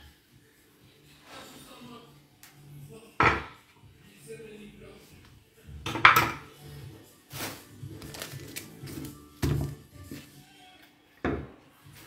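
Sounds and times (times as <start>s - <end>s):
faint music: 0.0s - 12.0s
dishes and pans clattering: 3.2s - 3.6s, 5.8s - 6.6s.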